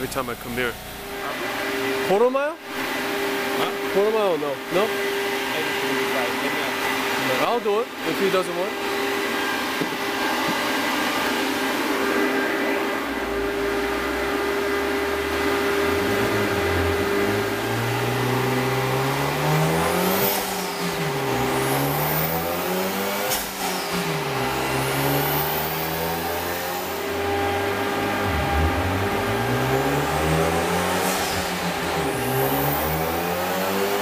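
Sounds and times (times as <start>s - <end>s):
cooling fan drone: 0.0s - 34.0s
car engine revving: 13.0s - 34.0s.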